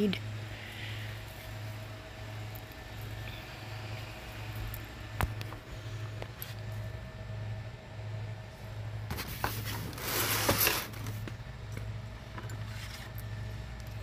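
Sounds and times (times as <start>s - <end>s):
low steady hum: 0.0s - 14.0s
rustling scrape: 9.1s - 11.2s, 12.6s - 13.2s.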